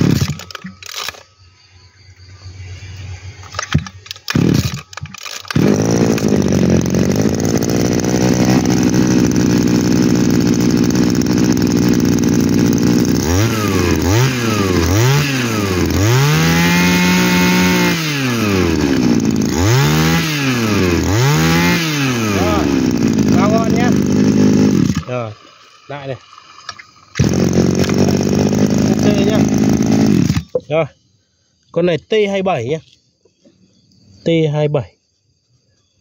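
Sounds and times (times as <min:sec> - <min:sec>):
two-stroke engine idling and revving: 0:00.0 - 0:01.2, 0:03.5 - 0:25.2, 0:27.2 - 0:30.6
recoil cord yanks: 0:03.5 - 0:09.4, 0:26.6 - 0:30.6.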